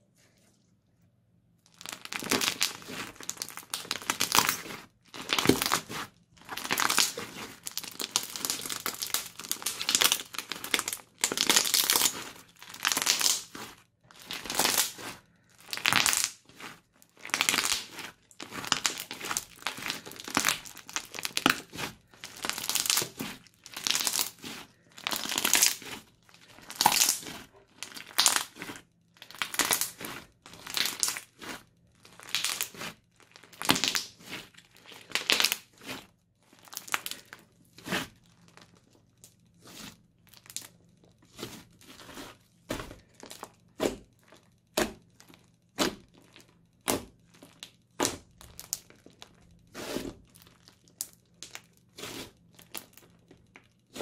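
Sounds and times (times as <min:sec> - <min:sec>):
crunchy slime squeezed by hand: 0:01.7 - 0:38.7.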